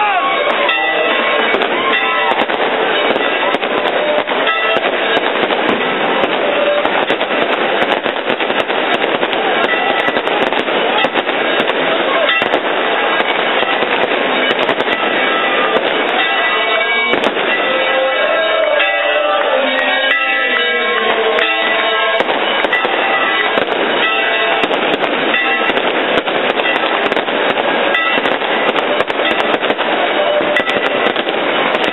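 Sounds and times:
crowd shouting: 0.0s - 31.9s
sharp cracks: 1.4s - 18.2s, 19.4s - 31.9s
crowd clapping: 15.6s - 23.5s.

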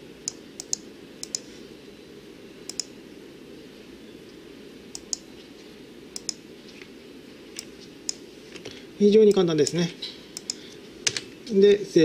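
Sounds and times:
low steady hum: 0.0s - 12.0s
computer mouse clicks: 0.2s - 1.5s, 2.7s - 2.9s, 4.9s - 5.2s, 6.2s - 6.4s, 10.4s - 11.2s
keyboard clicks: 0.3s - 1.4s, 2.7s - 2.9s, 4.9s - 5.2s, 6.2s - 6.4s, 10.4s - 11.2s.

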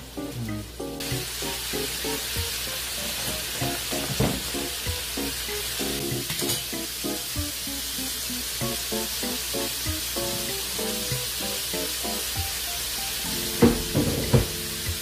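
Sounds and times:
background music: 0.0s - 15.0s
mushrooms sizzling in frying pan: 0.0s - 15.0s.

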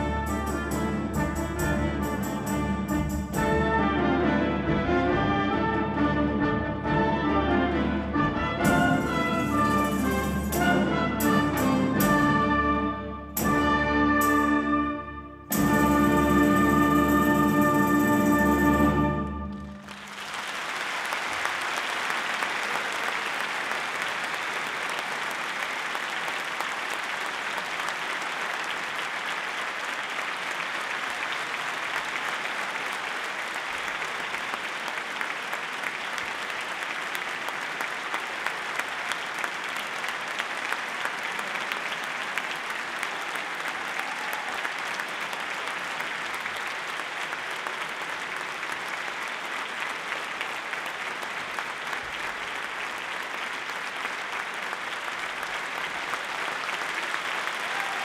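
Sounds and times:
audience applauding: 15.8s - 58.0s.

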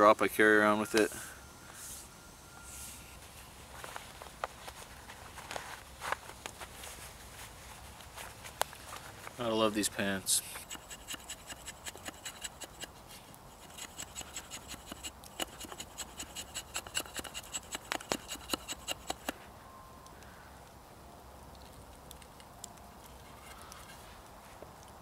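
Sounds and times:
knife shaving wood: 10.4s - 19.4s.

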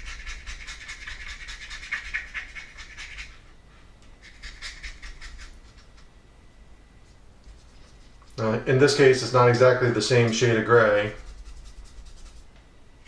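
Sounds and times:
paintbrush scratching on paper: 0.0s - 3.4s, 7.5s - 8.2s, 11.0s - 12.5s.

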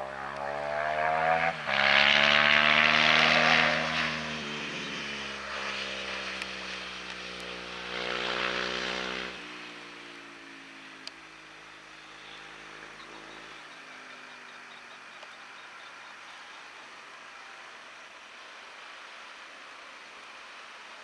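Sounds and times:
tractor diesel engine revving: 12.0s - 16.4s.

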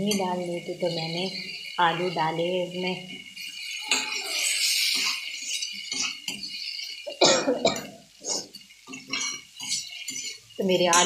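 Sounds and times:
frying sizzle: 0.0s - 11.0s
spatula scraping an iron pan: 8.3s - 11.0s.

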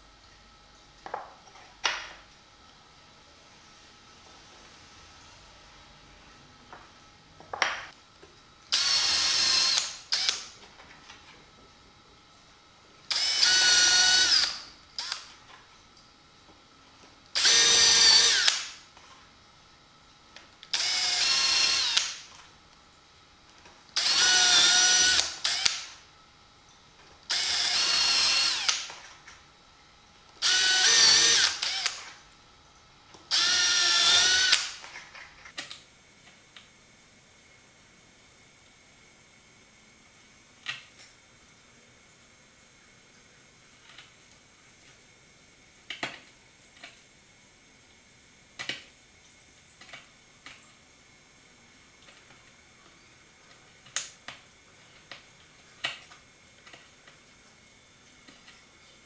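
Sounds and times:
drill boring into wood: 8.7s - 10.5s, 13.1s - 15.3s, 17.4s - 18.8s, 20.7s - 22.3s, 24.0s - 26.0s, 27.3s - 28.9s, 30.4s - 32.2s, 33.3s - 34.8s.

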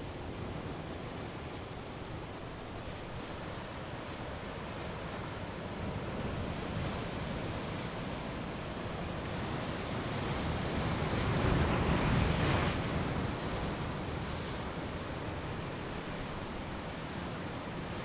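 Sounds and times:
waves breaking on rocky shore: 0.2s - 18.0s.

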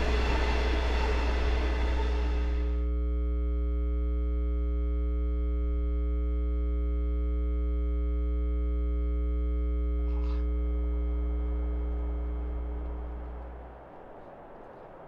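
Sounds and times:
electric locomotive humming: 0.0s - 2.9s, 10.0s - 15.0s
rough running noise: 10.1s - 15.0s.

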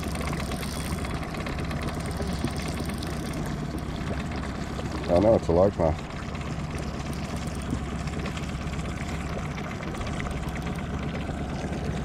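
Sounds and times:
boat motor idling: 0.0s - 12.0s.

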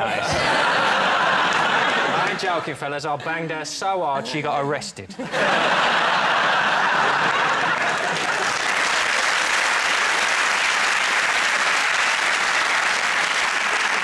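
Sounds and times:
audience applauding: 5.6s - 14.0s.

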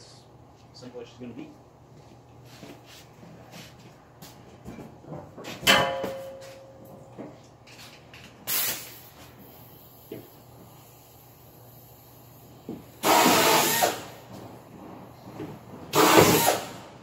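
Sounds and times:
metallic clang: 5.6s - 6.8s
short hissing burst: 8.5s - 10.1s, 13.0s - 14.2s.

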